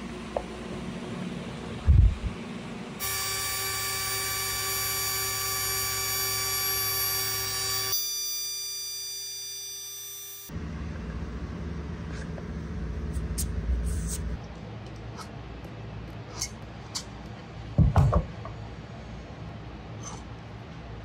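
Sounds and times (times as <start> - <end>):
low hum: 0.0 - 7.7, 10.5 - 16.5
electric motor whining: 3.0 - 10.5.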